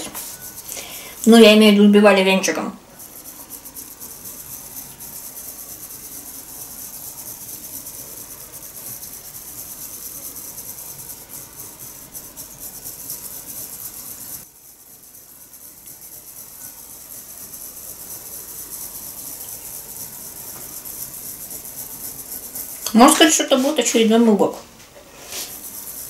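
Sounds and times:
whisk swishing in bowl: 0.0 - 26.0.

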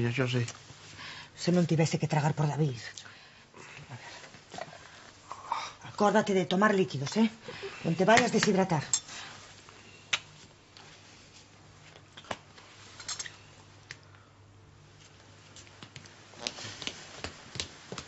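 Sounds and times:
room hum: 0.0 - 18.0
footsteps on hard floor: 15.6 - 18.0.

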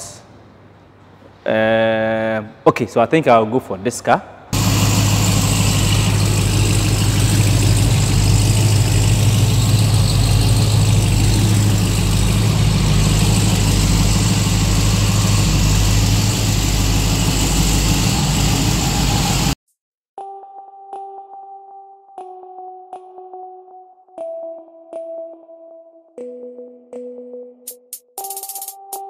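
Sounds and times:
truck engine idling: 4.6 - 19.6.

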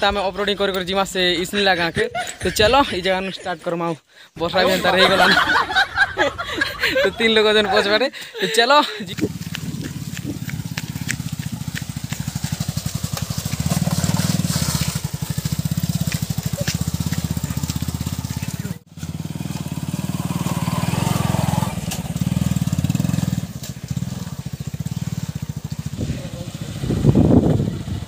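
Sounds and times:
motorcycle engine revving: 9.1 - 28.0.

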